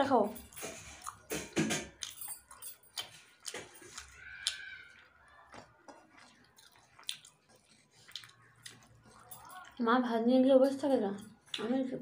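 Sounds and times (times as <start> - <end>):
quiet chewing: 0.5 - 9.9.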